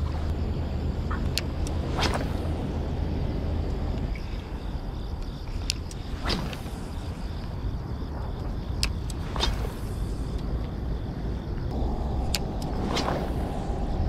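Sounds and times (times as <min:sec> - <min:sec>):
steady low rumble: 0:00.0 - 0:14.0
fishing rod swish: 0:01.9 - 0:02.4, 0:09.2 - 0:09.9, 0:12.2 - 0:13.8.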